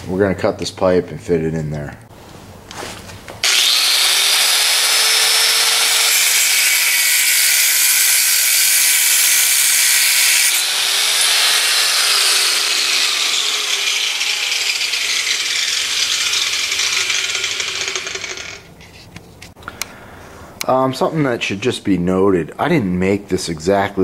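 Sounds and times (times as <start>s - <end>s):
grinder motor hum: 3.4s - 6.9s, 10.5s - 18.7s
angle grinder cutting metal: 3.4s - 18.7s.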